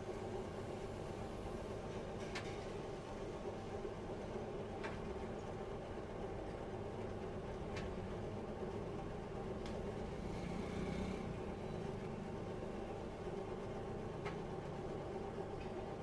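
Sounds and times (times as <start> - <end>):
machine hum with tones: 5.3 - 16.0.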